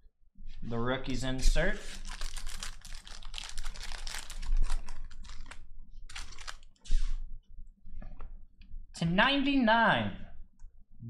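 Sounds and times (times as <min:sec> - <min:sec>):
trading cards clicking and rustling: 0:01.9 - 0:06.8.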